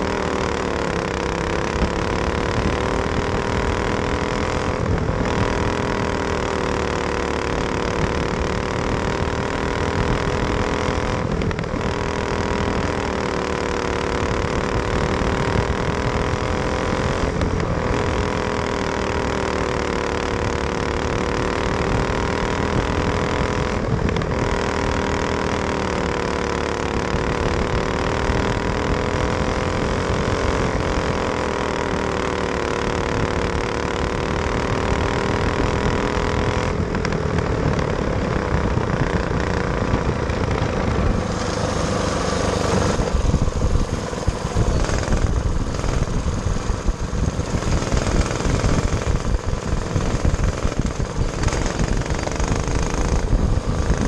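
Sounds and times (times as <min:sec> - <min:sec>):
kart engine racing: 0:00.0 - 0:54.0.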